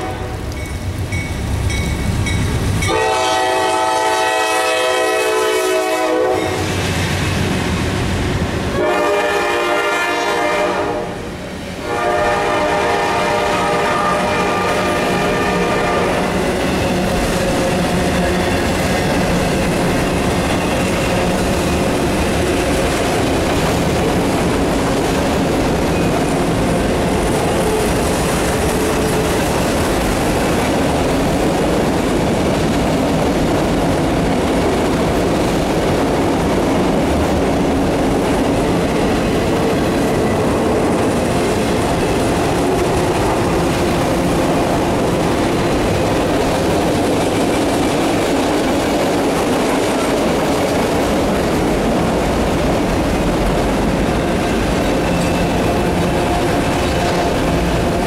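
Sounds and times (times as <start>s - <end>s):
steel train wheels on rail: 0.0s - 58.0s
clickety-clack over rail joints: 15.4s - 58.0s.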